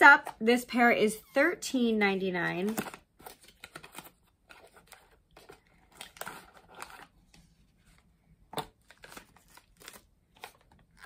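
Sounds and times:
cardboard packaging rustling: 2.7s - 11.0s.

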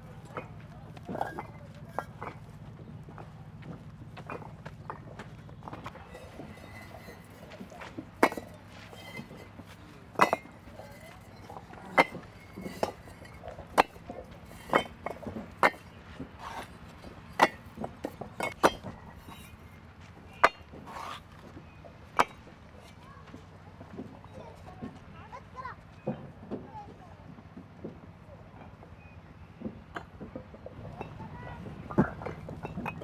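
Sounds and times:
bricks clinking together: 0.2s - 2.6s, 3.6s - 21.5s, 22.1s - 23.0s, 29.9s - 33.0s.

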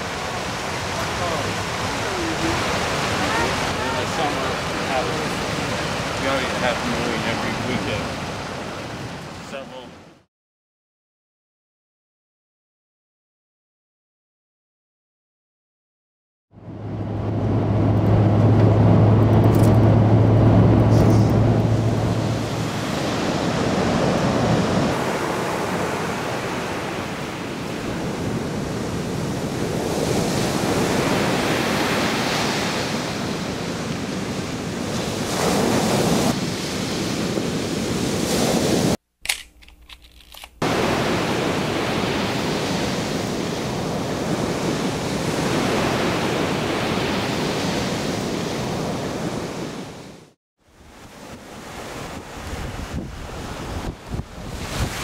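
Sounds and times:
surf breaking on a beach: 0.0s - 10.1s, 16.9s - 39.0s, 40.6s - 55.0s
wind blowing over microphone: 16.6s - 39.0s, 50.8s - 55.0s.

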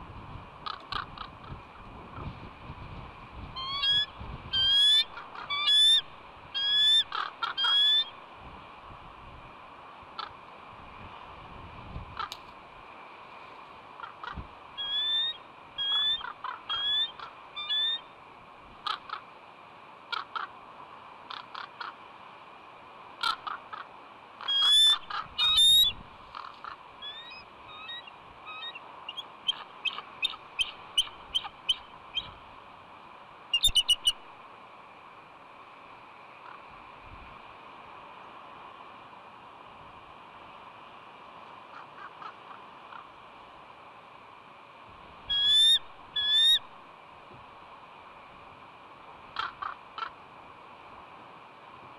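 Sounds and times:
eagle high piping calls: 3.6s - 8.2s, 14.0s - 18.1s, 24.4s - 32.4s, 33.5s - 34.2s, 45.3s - 46.7s.

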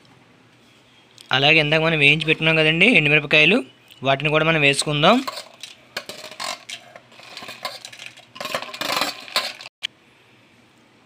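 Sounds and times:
chillies scraped from steel plate: 5.1s - 9.7s.

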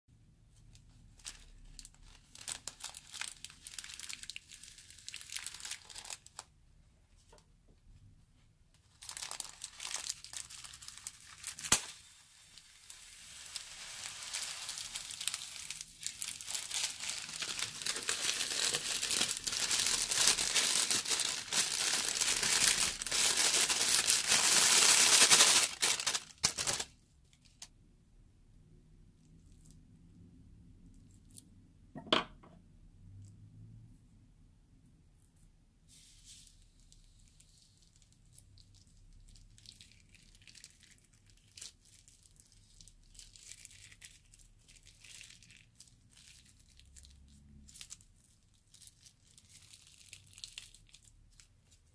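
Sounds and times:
plastic bag crinkling: 0.7s - 6.5s, 8.8s - 27.7s, 47.7s - 51.9s
foam beads pouring into bowl: 9.1s - 26.8s.

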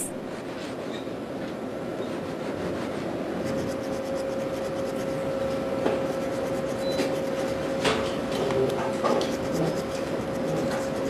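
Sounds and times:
steady hum: 0.0s - 11.0s
hand file rasping on metal gear: 3.5s - 5.2s, 6.0s - 7.8s, 9.2s - 11.0s.

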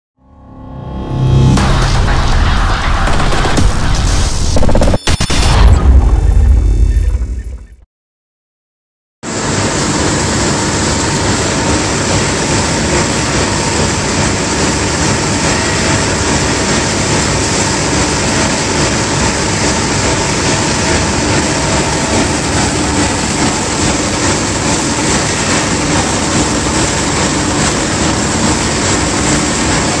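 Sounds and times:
machine rumble and hiss: 9.3s - 30.0s.

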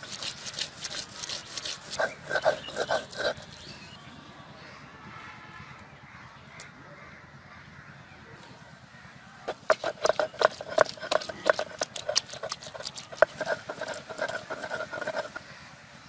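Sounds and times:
stone roller clacking on grinding stone: 0.0s - 3.6s, 9.5s - 15.4s.

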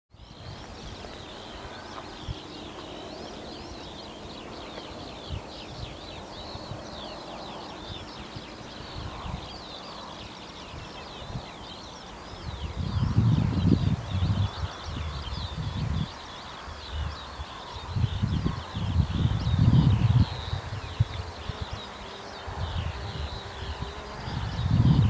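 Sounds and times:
birds chirping and trilling: 0.2s - 25.0s.

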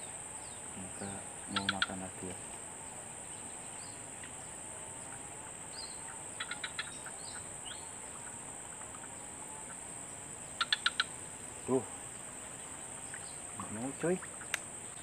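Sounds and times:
bird chirps: 0.0s - 15.0s
high-pitched insect drone: 0.0s - 15.0s.

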